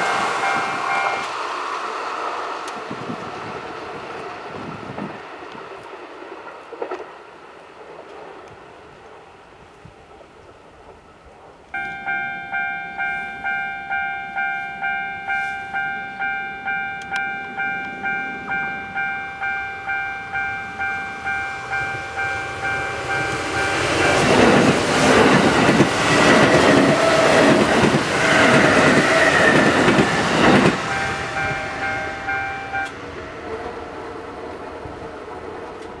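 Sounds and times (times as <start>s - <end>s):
level-crossing warning bell: 0.0s - 1.4s, 11.8s - 33.2s
train wheels clattering over rail joints: 23.3s - 31.4s.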